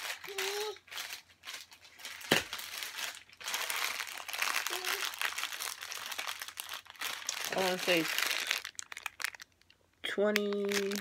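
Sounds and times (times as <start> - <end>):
plastic bag crinkling: 0.0 - 11.0.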